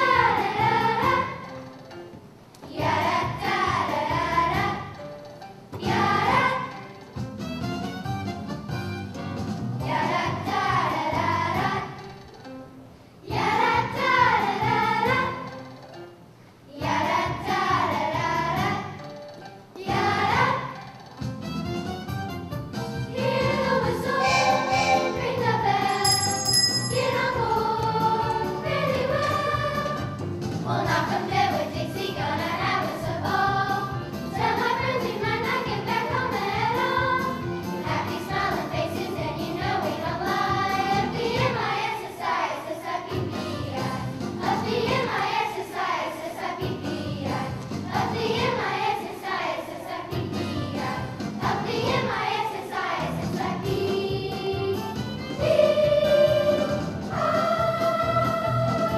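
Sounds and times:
children's choir singing: 0.0 - 1.5, 5.8 - 6.8, 9.8 - 12.0, 23.1 - 58.9
instrumental accompaniment on loudspeaker: 24.1 - 26.2
brief high ringing: 24.1 - 27.2.

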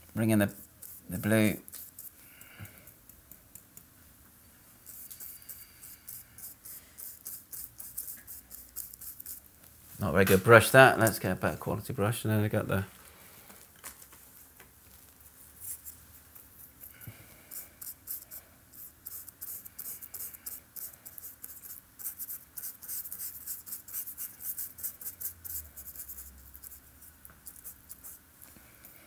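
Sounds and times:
paintbrush scratchy strokes: 0.5 - 2.3, 4.8 - 9.5, 14.9 - 16.9, 17.8 - 29.0.

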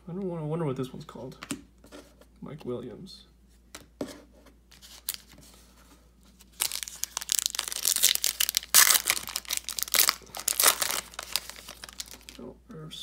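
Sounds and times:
foil wrapper tearing and crinkling: 6.6 - 12.4.

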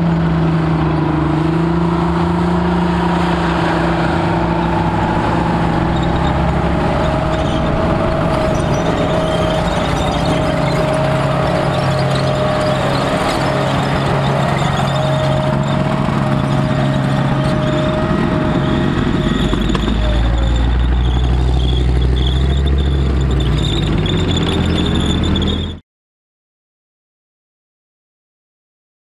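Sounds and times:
vehicle engine running: 0.0 - 25.8
high squeal: 1.6 - 25.8.

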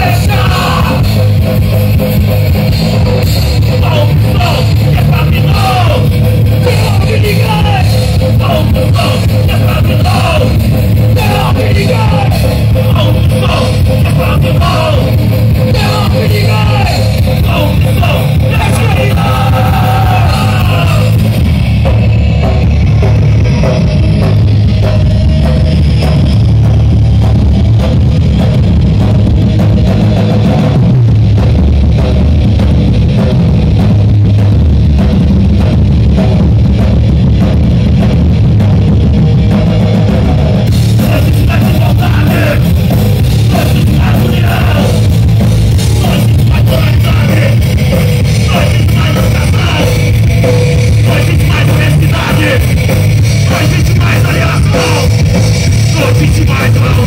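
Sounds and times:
shouted vocals: 0.0 - 1.1, 3.8 - 21.3, 43.4 - 45.1
heavy rock band playing: 0.0 - 57.0
pounding drum kit: 0.0 - 57.0.

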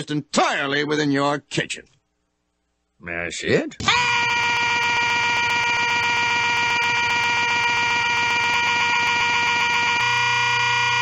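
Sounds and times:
electronic buzzing tone: 3.9 - 11.0.

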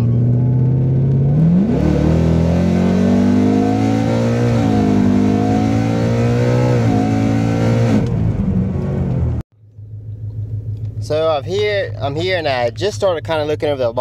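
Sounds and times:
car engine revving at full throttle: 0.0 - 9.4.

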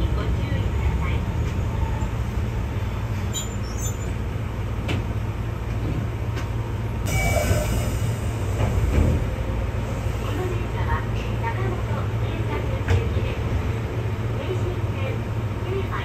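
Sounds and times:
train rumble on rails: 0.0 - 16.0
high wheel squeal: 7.1 - 8.3.

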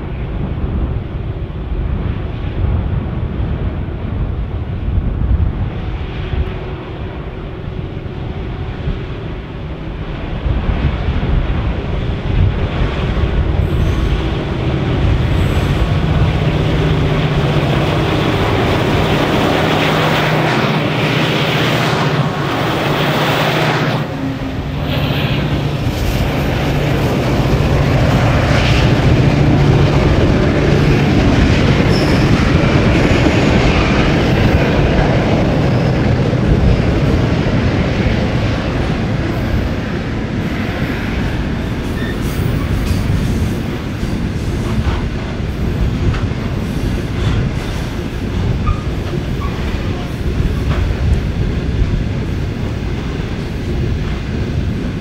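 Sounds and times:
diesel locomotive engines droning: 0.0 - 55.0
train wagons rolling: 10.6 - 39.8, 40.4 - 55.0.

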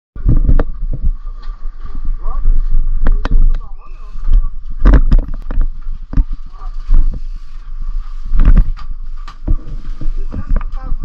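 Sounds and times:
thumps and knocks on microphone: 0.2 - 1.9, 2.7 - 3.7, 4.3 - 7.3, 8.2 - 11.0
faint voices: 0.2 - 11.0
low rumble: 0.2 - 11.0.

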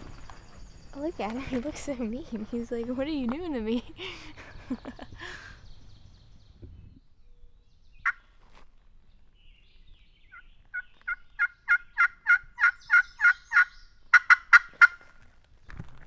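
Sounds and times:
turkey box call yelps: 10.3 - 15.0.

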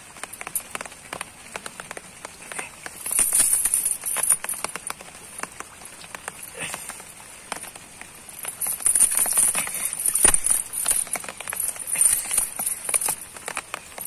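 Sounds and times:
high jingling hiss: 0.0 - 14.0
muddy water splashing: 0.0 - 14.0
chain links clinking: 2.5 - 6.7, 7.5 - 14.0.

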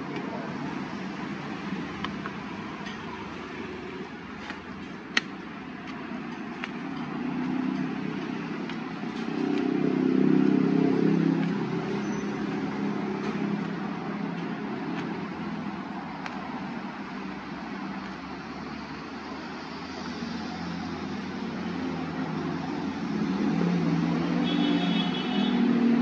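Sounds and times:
street traffic: 0.0 - 26.0
vehicle engine passing: 6.1 - 24.4.

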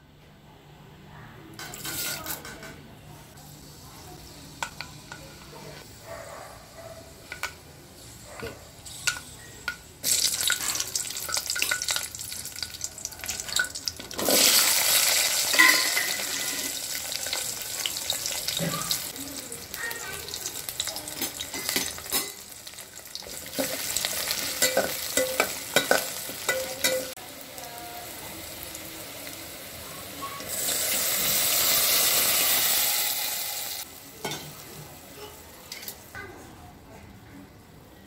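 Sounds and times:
oil sizzling in a pot: 7.2 - 36.2.

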